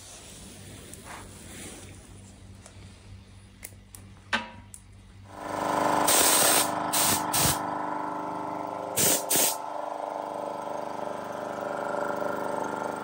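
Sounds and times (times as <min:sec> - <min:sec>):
air compressor running: 0:05.2 - 0:13.0
air hissing spurts: 0:06.1 - 0:07.6, 0:09.0 - 0:09.6.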